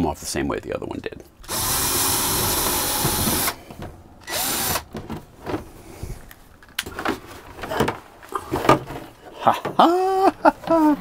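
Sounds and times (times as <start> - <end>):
power drill backing out screw: 1.4 - 5.0.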